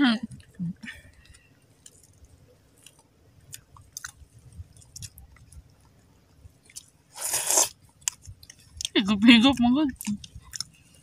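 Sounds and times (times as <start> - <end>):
wet chewing: 0.3 - 11.0
loud slurp: 7.2 - 7.7.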